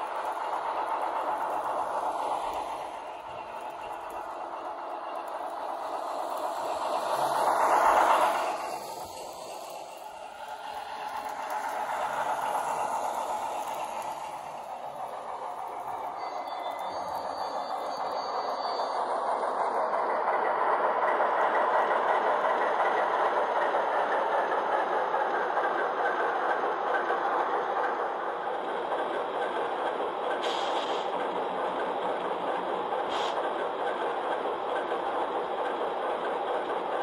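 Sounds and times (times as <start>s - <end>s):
short hissy bursts: 30.4s - 31.1s.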